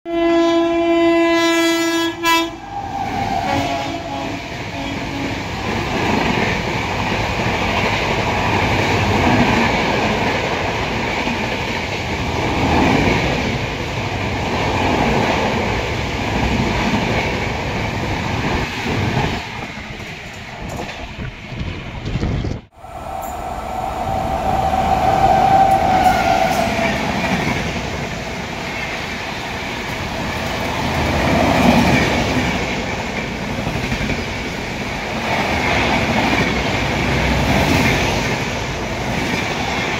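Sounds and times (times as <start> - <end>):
trains passing at high speed: 0.2 - 39.9
steady tone: 22.7 - 29.1.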